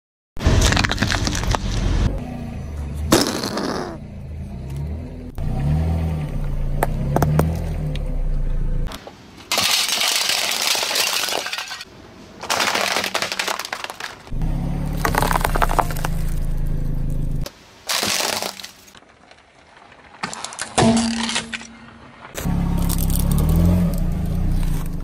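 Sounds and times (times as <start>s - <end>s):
crackling crunch under tyre: 0.4s - 2.2s, 3.0s - 4.0s, 4.6s - 25.0s
whoopee cushion raspberry: 3.1s - 4.0s.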